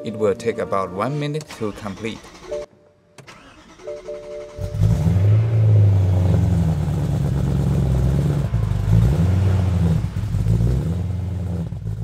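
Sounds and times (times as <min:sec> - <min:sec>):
car engine fast idling: 0:06.3 - 0:12.0.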